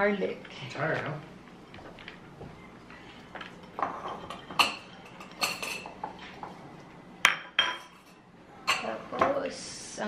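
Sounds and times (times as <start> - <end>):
dishes and utensils clinking: 3.0 - 6.6, 7.2 - 9.4.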